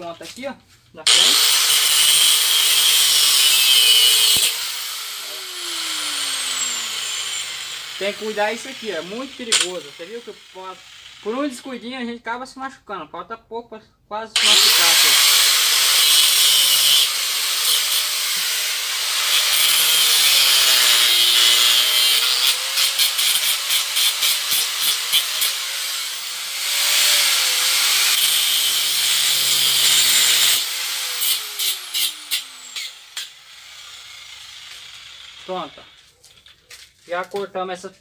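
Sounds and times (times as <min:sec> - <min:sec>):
angle grinder cutting steel: 0:01.0 - 0:11.8, 0:14.4 - 0:36.1
grinder winding down: 0:01.1 - 0:11.8, 0:14.4 - 0:36.1.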